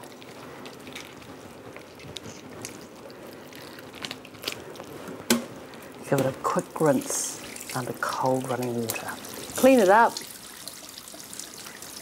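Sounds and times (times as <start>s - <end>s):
wet crunching and tearing of fish: 0.0s - 5.0s.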